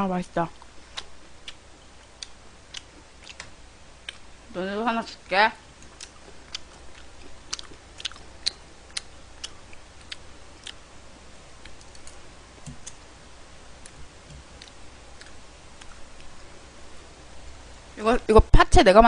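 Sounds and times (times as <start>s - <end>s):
faint low hum: 0.0s - 19.0s
chewing: 0.9s - 4.3s, 5.8s - 10.8s, 13.8s - 16.4s
chopsticks clicking: 11.6s - 13.0s.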